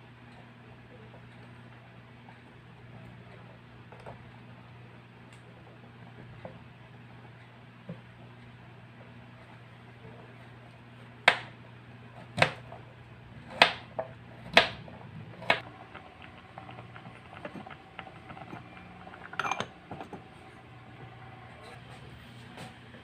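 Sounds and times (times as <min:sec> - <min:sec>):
faint steady hum: 0:00.0 - 0:23.0
knife chopping on wooden board: 0:11.2 - 0:11.5, 0:12.4 - 0:12.6, 0:13.4 - 0:14.8, 0:15.4 - 0:15.6
steel pot lid clatter: 0:15.9 - 0:20.2.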